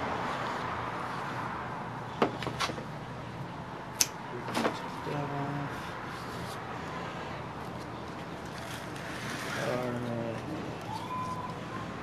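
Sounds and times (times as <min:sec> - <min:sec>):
steady background noise: 0:00.0 - 0:12.0
pruning shears snipping: 0:04.0 - 0:04.2.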